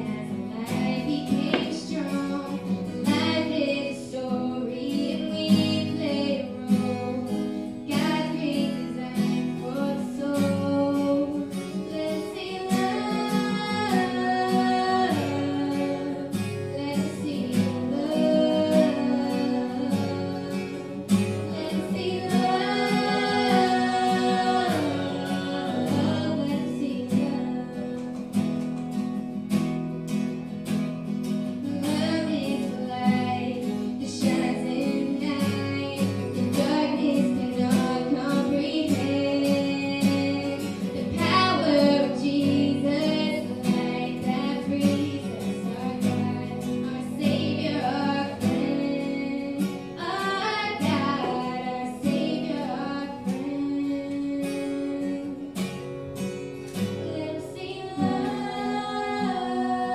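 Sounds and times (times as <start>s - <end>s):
woman singing: 0.0s - 28.9s, 31.5s - 55.9s, 56.8s - 59.9s
strummed acoustic guitar: 0.0s - 59.9s.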